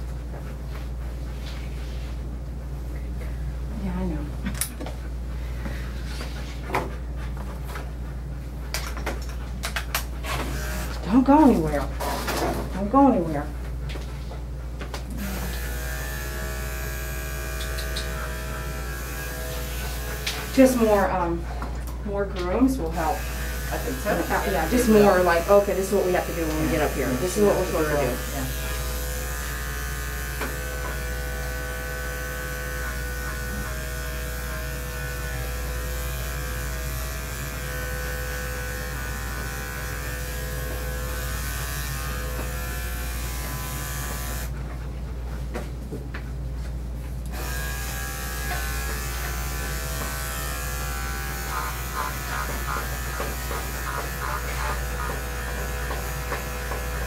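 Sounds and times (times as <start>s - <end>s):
electric clippers buzzing: 10.2s - 12.2s, 15.1s - 21.3s, 22.8s - 44.5s, 47.3s - 57.0s.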